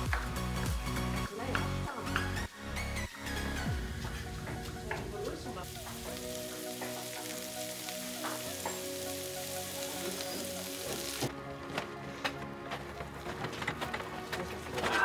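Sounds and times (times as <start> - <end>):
soft background music: 0.0 - 15.0
carrots sizzling in a wok: 3.9 - 11.3.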